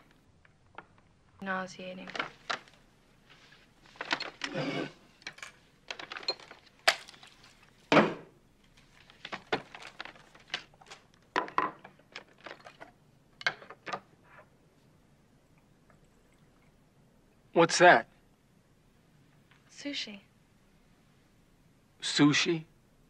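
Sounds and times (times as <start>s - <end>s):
paper bag rustling: 8.7s - 11.3s
objects clicking and knocking on table: 9.0s - 14.5s.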